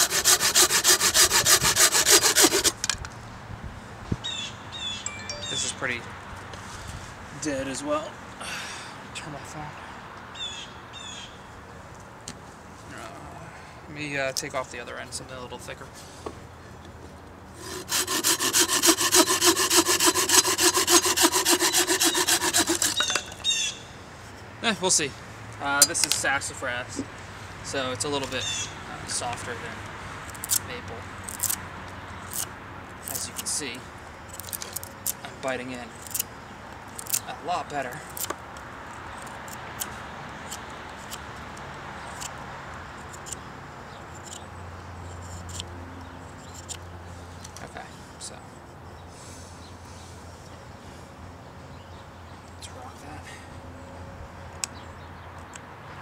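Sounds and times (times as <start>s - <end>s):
pruning saw cutting wood: 0.0s - 3.0s, 17.6s - 23.3s, 32.2s - 33.6s, 34.3s - 35.3s, 36.0s - 36.3s.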